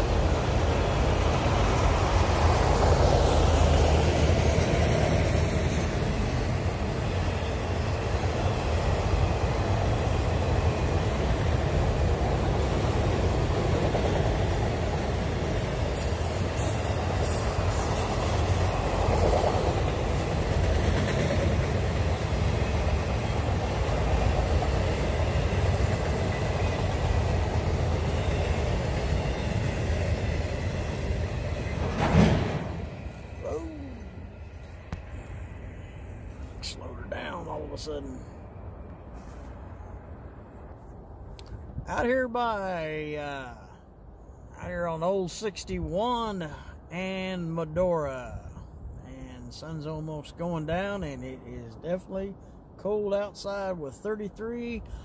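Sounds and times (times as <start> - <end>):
steel wheels rumbling on rail: 0.0 - 35.9
freight train rolling past: 0.0 - 48.7.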